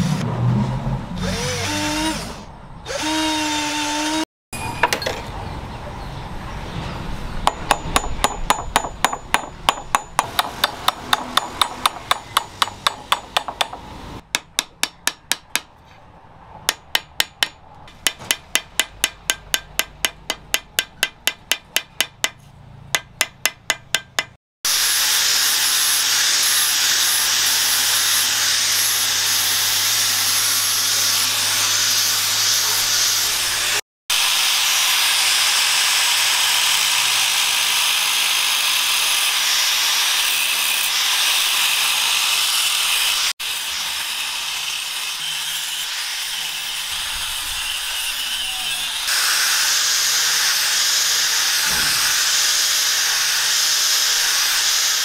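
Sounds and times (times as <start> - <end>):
cordless drill whining: 1.2 - 4.2
hammer striking metal on anvil: 7.4 - 15.7, 16.7 - 24.4.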